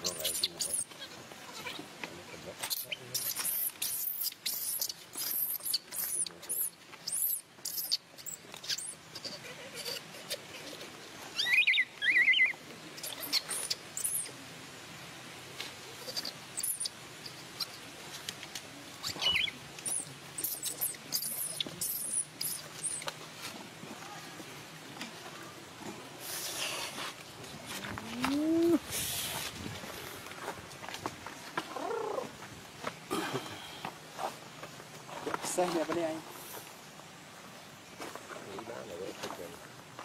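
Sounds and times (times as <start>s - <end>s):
infant monkey crying: 7.7s - 14.3s, 16.0s - 17.8s.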